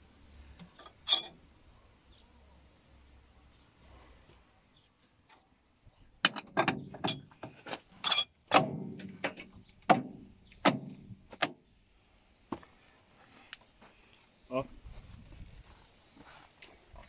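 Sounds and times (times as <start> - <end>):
metal gear clanking on shaft: 0.8 - 1.4, 6.2 - 9.5.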